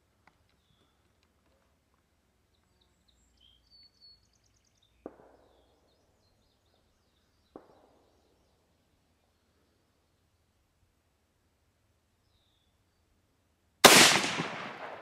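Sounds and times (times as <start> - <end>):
bird chirps: 2.5 - 10.5
faint gunshots with echo: 5.0 - 5.8, 13.8 - 15.0.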